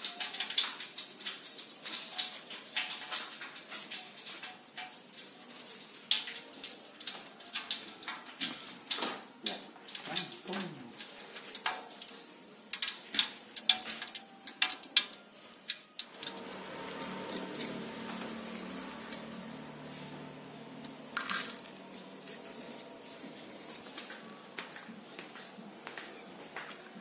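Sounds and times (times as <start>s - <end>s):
hot oil crackling and popping: 0.0s - 27.0s
low hum: 16.1s - 24.6s.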